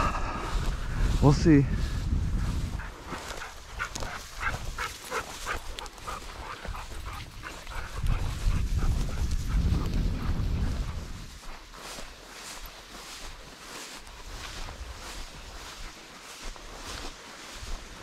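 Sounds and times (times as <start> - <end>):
low rumble on microphone: 0.0 - 3.0, 6.7 - 11.5.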